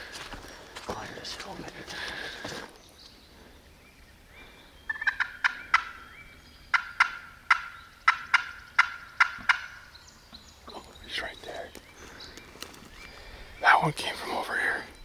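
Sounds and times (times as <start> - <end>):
turkey calling: 4.4 - 13.7.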